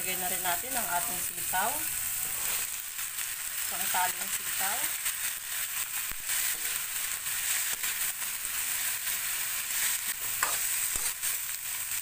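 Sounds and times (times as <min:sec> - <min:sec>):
beans sizzling in hot oil: 0:00.0 - 0:12.0
spatula scraping and clicking on pan: 0:09.8 - 0:11.4.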